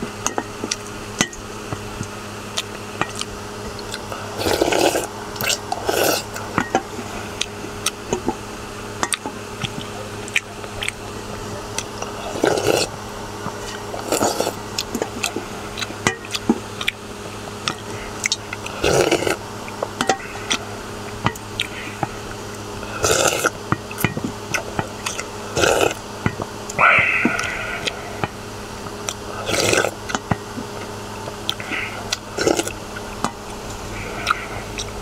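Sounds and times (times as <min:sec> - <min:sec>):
noodles being slurped: 0:02.5 - 0:08.3, 0:11.7 - 0:17.0, 0:17.7 - 0:26.0, 0:26.7 - 0:35.0.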